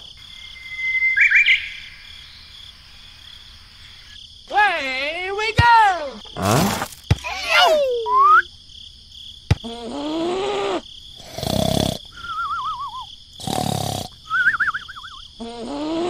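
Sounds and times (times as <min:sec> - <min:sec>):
crickets chirring: 0:00.0 - 0:16.0
wavering whistle: 0:00.5 - 0:01.7, 0:07.9 - 0:08.5, 0:12.1 - 0:13.1, 0:14.2 - 0:15.2
cartoon snoring: 0:06.4 - 0:06.9, 0:09.6 - 0:12.2, 0:13.4 - 0:14.3, 0:15.4 - 0:16.0
short snort: 0:06.4 - 0:07.0, 0:09.6 - 0:12.2, 0:13.4 - 0:14.2, 0:15.4 - 0:16.0.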